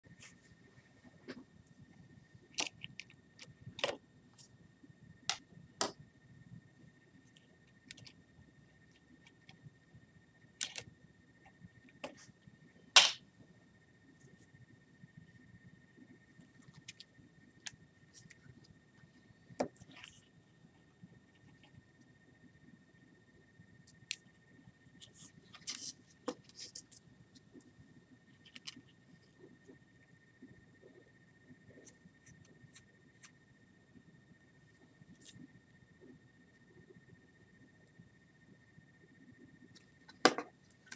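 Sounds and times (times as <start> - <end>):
plastic parts clicking and rustling: 10.6 - 10.9.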